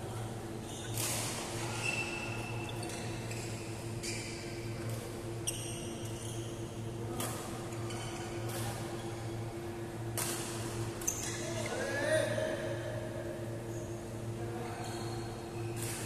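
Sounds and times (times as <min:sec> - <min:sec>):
steady low hum: 0:00.0 - 0:16.0
shoe squeaks on court floor: 0:00.7 - 0:01.0, 0:01.6 - 0:04.6, 0:05.4 - 0:06.7, 0:11.0 - 0:11.7
rackets hitting shuttlecock: 0:10.1 - 0:10.8.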